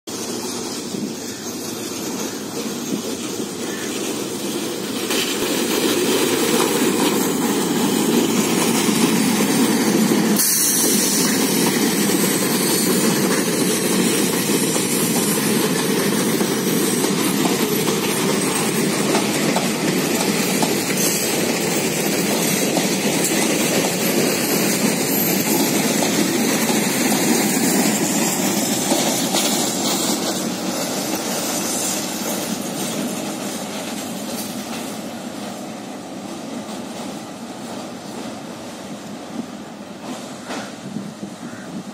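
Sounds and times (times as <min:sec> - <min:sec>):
train wheels rumbling on rails: 0:00.1 - 0:41.9.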